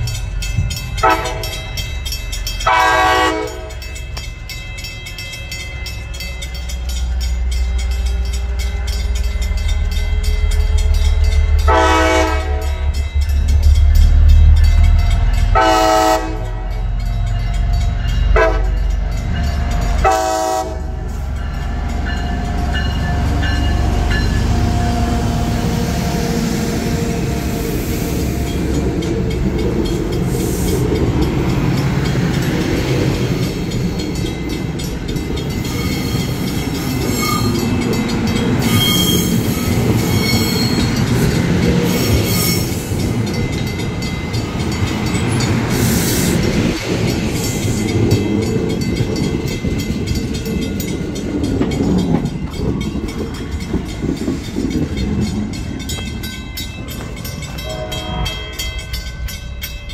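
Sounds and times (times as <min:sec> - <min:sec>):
train wheels clattering on rails: 0:00.0 - 0:59.9
train horn blasts: 0:01.0 - 0:01.7, 0:02.6 - 0:03.9, 0:11.6 - 0:13.0, 0:15.5 - 0:16.8, 0:18.3 - 0:19.0, 0:20.0 - 0:21.1, 0:57.6 - 0:58.8.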